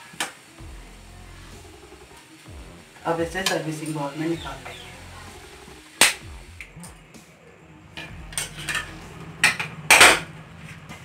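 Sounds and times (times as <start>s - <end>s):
metal spatula scraping a pan: 8.0s - 10.3s.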